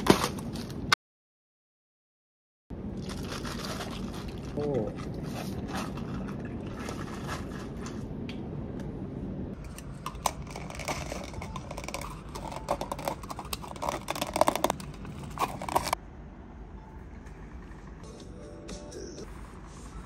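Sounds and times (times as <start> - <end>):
low room rumble: 2.7 - 20.0
plastic cups with ice clicking: 9.6 - 16.0.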